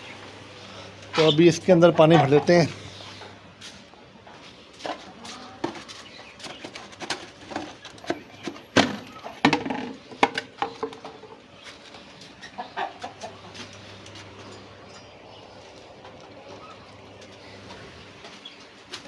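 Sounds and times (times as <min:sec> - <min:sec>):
chickens clucking: 0:00.0 - 0:19.0
sharp knocks and clatter: 0:05.6 - 0:11.4.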